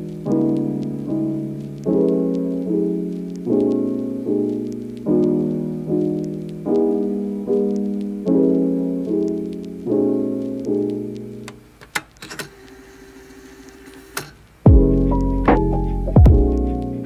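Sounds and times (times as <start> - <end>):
soft piano chords: 0.0 - 11.7, 14.7 - 17.0.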